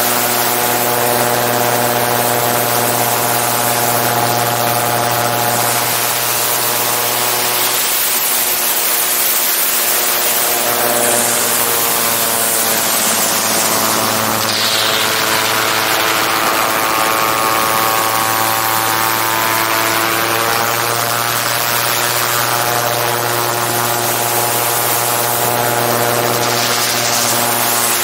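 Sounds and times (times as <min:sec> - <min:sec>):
aircraft engine and propeller: 0:00.0 - 0:28.0.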